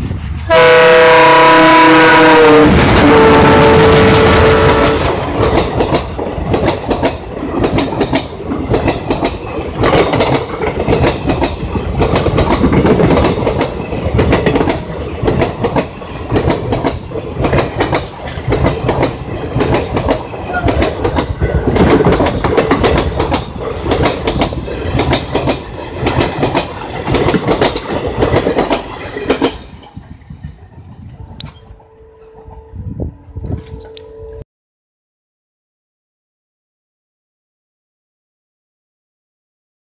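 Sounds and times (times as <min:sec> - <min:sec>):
train wheels clickety-clack: 0:02.2 - 0:32.7.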